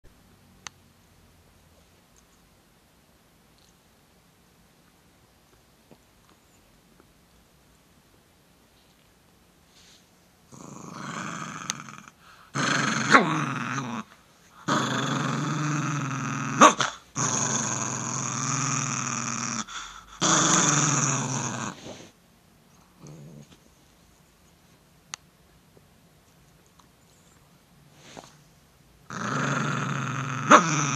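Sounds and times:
dog growling: 10.5 - 22.1, 22.8 - 23.6, 29.1 - 30.9.

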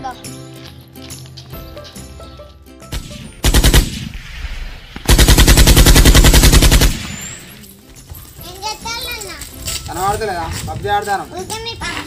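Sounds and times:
automatic gunfire bursts: 3.4 - 4.2, 5.1 - 7.2.

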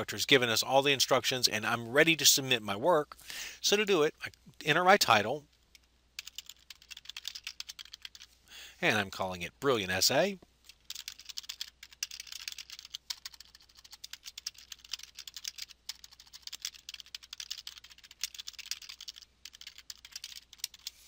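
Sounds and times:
typing on a computer keyboard: 6.2 - 8.3, 10.7 - 21.0.

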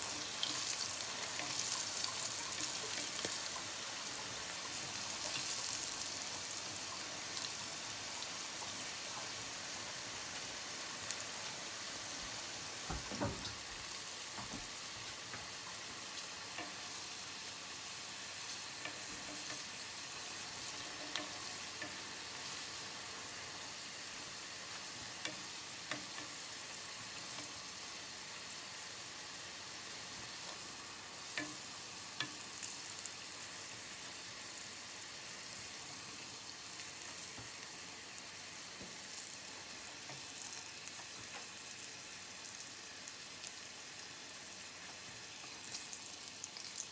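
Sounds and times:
sauce sizzling in a pan: 0.0 - 46.9
dull knock: 12.9 - 13.6
chopsticks clicking against pan: 18.7 - 19.8, 20.9 - 22.0, 25.2 - 26.4.

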